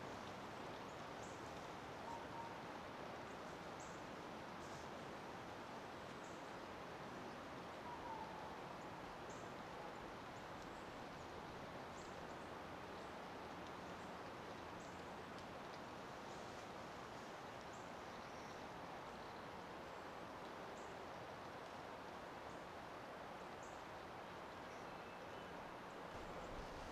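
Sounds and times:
low steady hiss: 0:00.0 - 0:26.9
faint bird call: 0:02.0 - 0:02.6, 0:07.8 - 0:08.6
faint bird chirps: 0:07.8 - 0:08.6.

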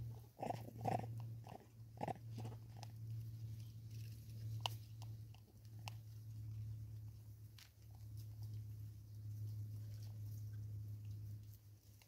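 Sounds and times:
monkey crunching bird seed: 0:00.0 - 0:06.3.

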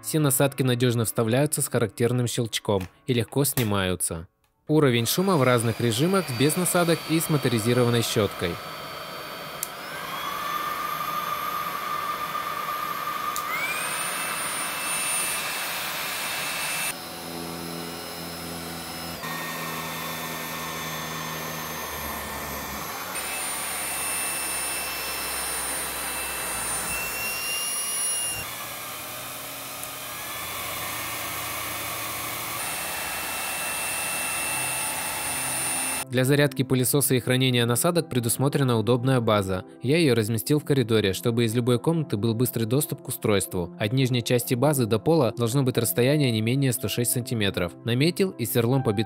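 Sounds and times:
stick vacuum motor whine: 0:05.0 - 0:36.1
motorized brush hum: 0:05.1 - 0:36.0.

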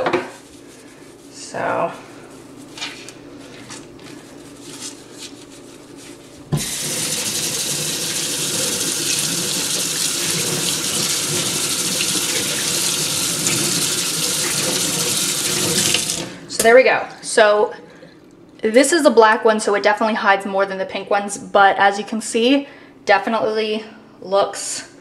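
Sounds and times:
tap water running into sink: 0:06.6 - 0:16.4.

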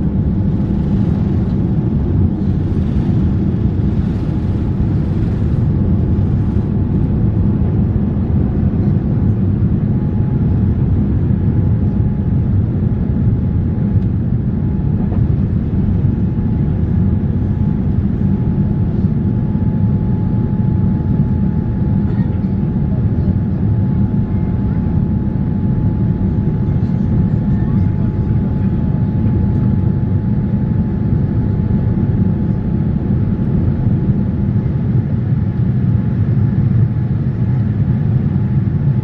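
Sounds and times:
faint steady whine: 0:00.0 - 0:39.0
low rumble of jet engines: 0:00.0 - 0:39.0.

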